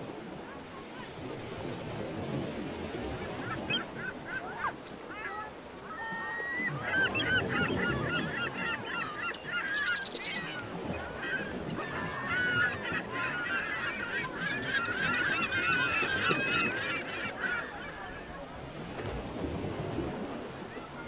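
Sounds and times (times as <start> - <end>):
flock of birds calling: 3.2 - 18.6.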